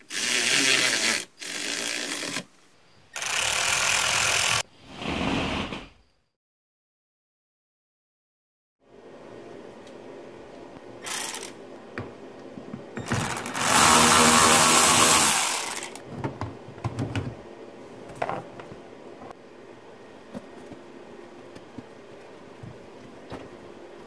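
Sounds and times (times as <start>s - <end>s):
loud rustling scrape: 4.8s - 6.0s.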